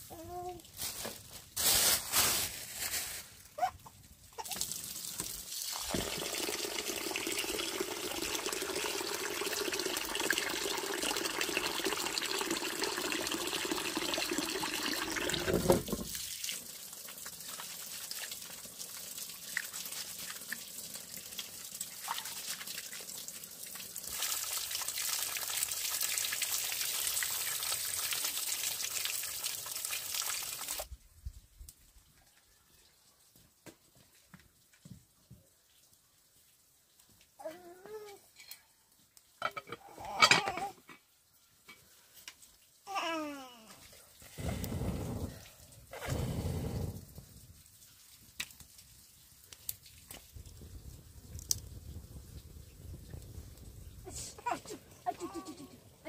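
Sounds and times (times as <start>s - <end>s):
water running: 4.3s - 30.9s, 54.0s - 56.0s.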